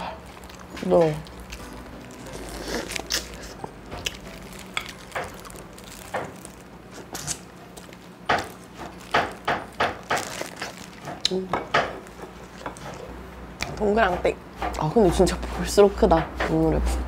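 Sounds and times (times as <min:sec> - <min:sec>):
person chewing with mouth smacks: 0:00.2 - 0:09.4.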